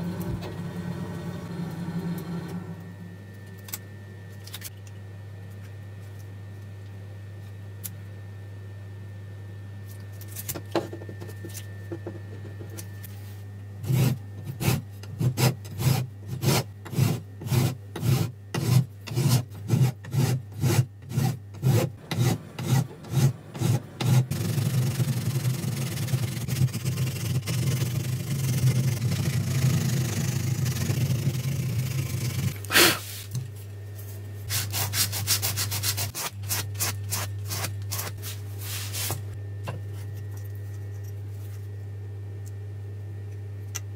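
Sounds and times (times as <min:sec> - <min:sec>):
file scraping wood: 0:13.8 - 0:33.1.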